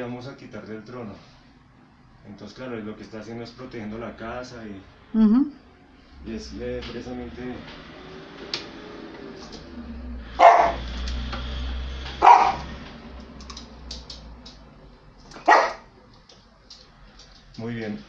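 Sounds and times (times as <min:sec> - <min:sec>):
dog barking sharply: 0:10.4 - 0:10.8, 0:12.2 - 0:12.7, 0:15.4 - 0:15.9.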